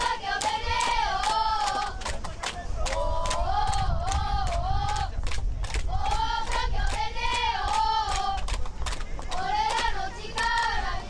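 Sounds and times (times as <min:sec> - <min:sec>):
crowd chanting in unison: 0:00.0 - 0:02.0, 0:02.8 - 0:05.1, 0:05.9 - 0:08.4, 0:09.3 - 0:11.0
hand claps: 0:00.0 - 0:10.8.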